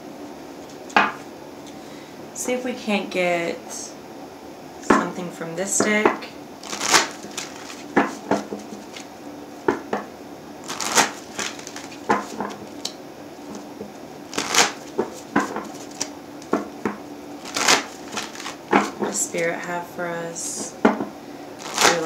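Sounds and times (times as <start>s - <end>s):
cards being shuffled: 6.6s - 9.1s, 10.6s - 13.7s, 14.3s - 16.7s, 17.4s - 19.5s, 21.6s - 22.0s.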